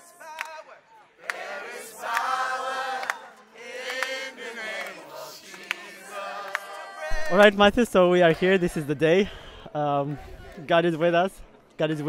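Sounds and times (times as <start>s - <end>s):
group singing worship song: 1.2s - 7.5s, 8.3s - 10.7s.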